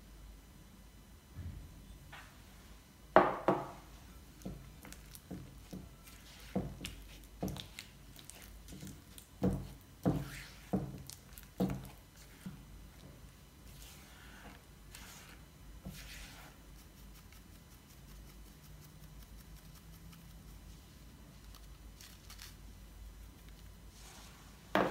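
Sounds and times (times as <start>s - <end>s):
wet squishing of mixture: 4.3s - 17.5s.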